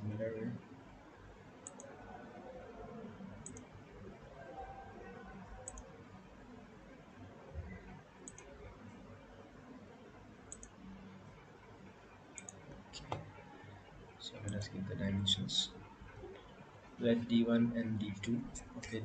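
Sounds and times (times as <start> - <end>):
faint room noise: 0.0 - 19.0
computer mouse buttons clicking: 1.6 - 1.9, 3.4 - 3.7, 5.6 - 5.9, 8.2 - 8.6, 10.5 - 10.8, 12.3 - 13.4.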